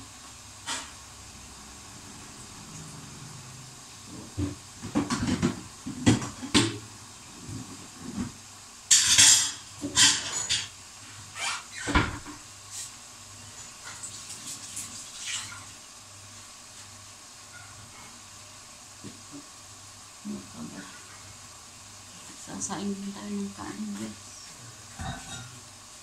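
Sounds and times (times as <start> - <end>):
dishes and utensils clattering: 4.9 - 6.8, 8.9 - 10.7, 24.9 - 25.6.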